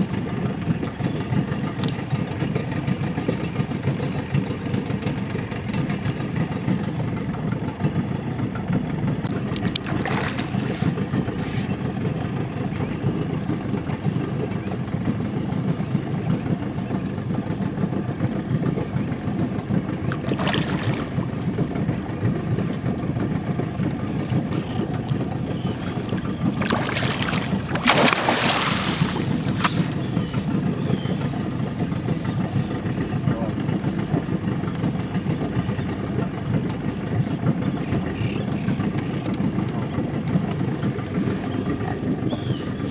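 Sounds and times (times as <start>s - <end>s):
steady low rumble: 0.0s - 42.9s
fish splashing at surface: 9.8s - 10.9s, 20.2s - 21.1s, 25.9s - 30.0s.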